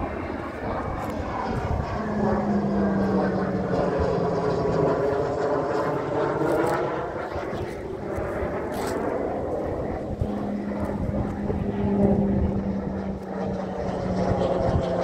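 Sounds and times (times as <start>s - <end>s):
aircraft engine drone: 0.0s - 15.0s.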